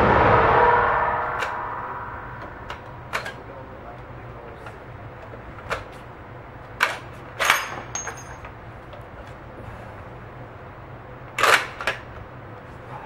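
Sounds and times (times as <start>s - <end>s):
metal casing clinking on concrete: 7.4s - 8.6s.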